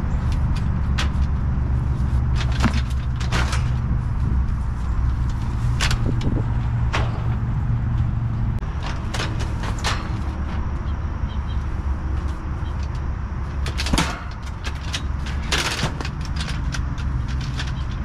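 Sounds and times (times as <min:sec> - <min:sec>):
low mechanical hum: 0:00.0 - 0:18.0
metal clicks and knocks: 0:12.2 - 0:18.0.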